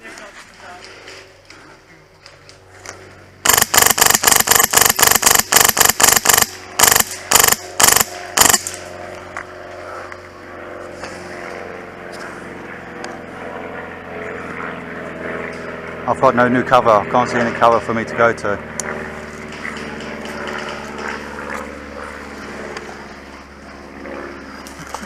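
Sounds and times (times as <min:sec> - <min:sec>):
airsoft rifle firing: 0:03.4 - 0:08.9.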